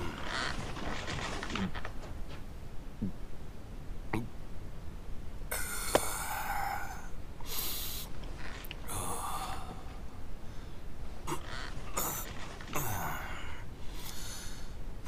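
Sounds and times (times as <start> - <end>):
man breathing heavily: 5.5 - 8.2, 8.8 - 10.9, 12.8 - 14.9.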